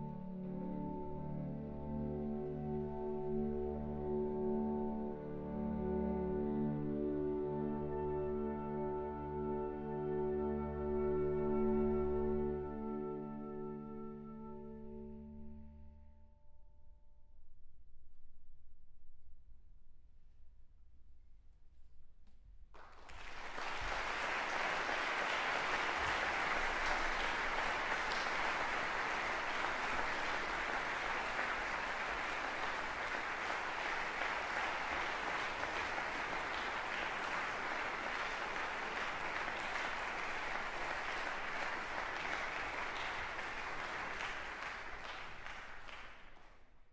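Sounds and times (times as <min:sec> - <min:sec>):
audience applauding: 0:22.8 - 0:46.6.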